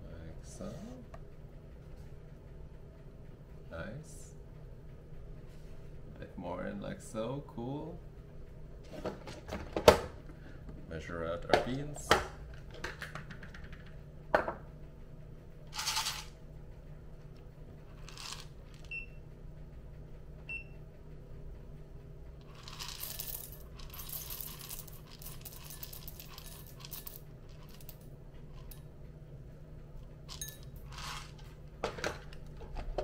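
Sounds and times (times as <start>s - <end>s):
coffee beans pouring into glass: 22.5s - 27.0s.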